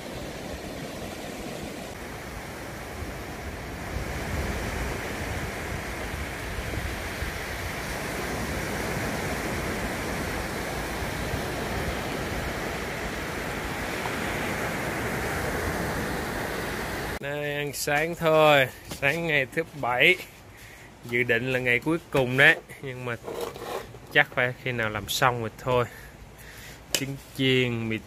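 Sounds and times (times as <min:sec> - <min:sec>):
small waves breaking on beach: 0:00.0 - 0:17.2
wind: 0:00.0 - 0:28.0.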